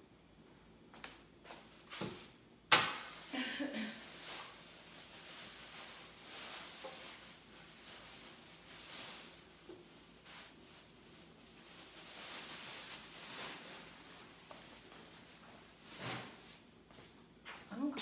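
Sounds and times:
faint rustling and handling noises: 0.5 - 2.4, 3.1 - 18.0.

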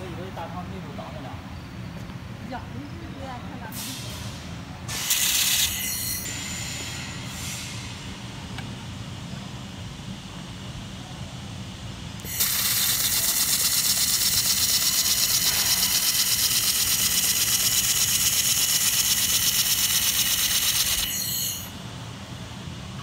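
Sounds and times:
laser welder pulsing hiss: 4.9 - 7.9, 12.2 - 21.7.

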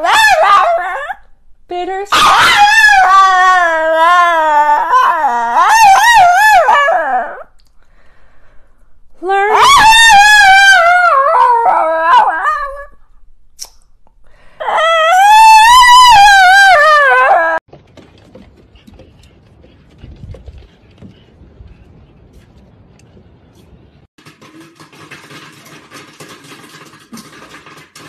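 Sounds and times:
small dog howling: 0.0 - 1.2, 2.1 - 7.5, 9.5 - 12.9, 14.6 - 17.6.

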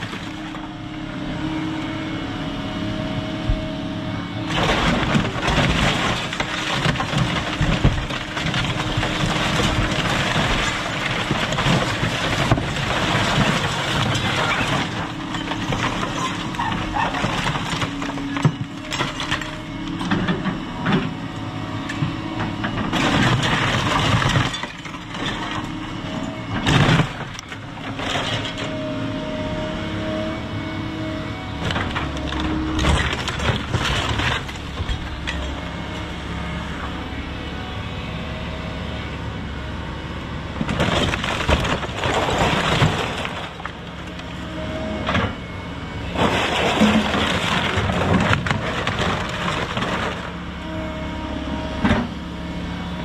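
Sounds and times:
excavator diesel engine running: 0.0 - 53.0
debris cracking and crashing: 4.5 - 20.4, 22.7 - 28.8, 31.6 - 35.6, 40.6 - 44.4, 46.1 - 50.4.

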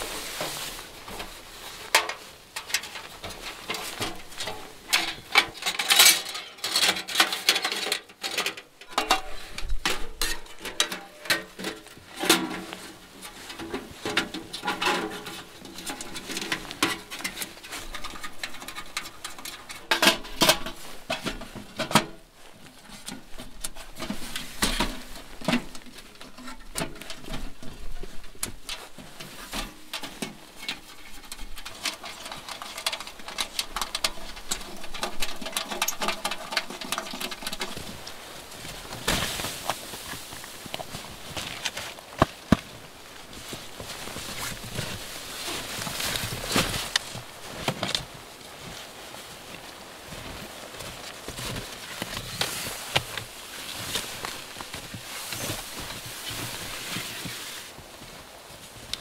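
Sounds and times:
metal panels clinking and scraping: 0.0 - 42.5.

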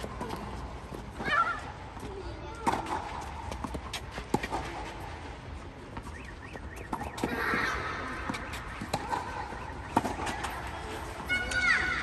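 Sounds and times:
racket striking tennis ball: 8.2 - 11.7.

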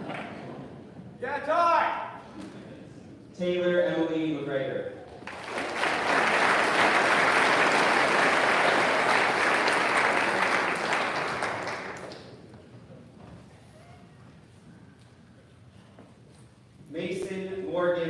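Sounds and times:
audience applauding: 5.2 - 12.5.

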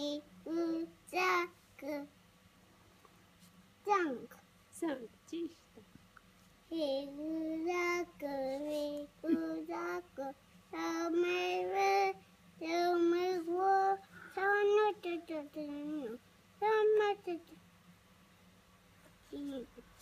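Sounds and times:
toddler singing: 0.0 - 2.1, 6.7 - 17.5.

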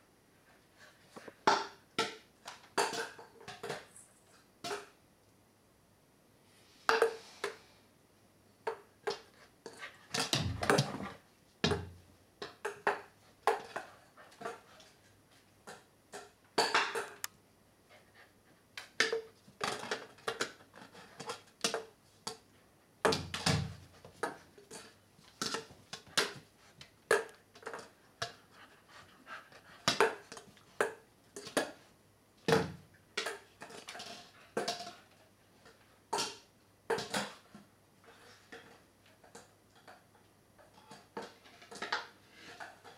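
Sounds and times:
heavy thumps: 10.3 - 11.1.

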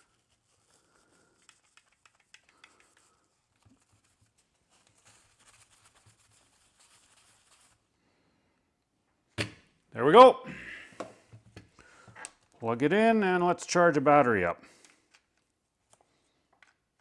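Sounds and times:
paper wipe rubbing plastic: 0.0 - 7.8.

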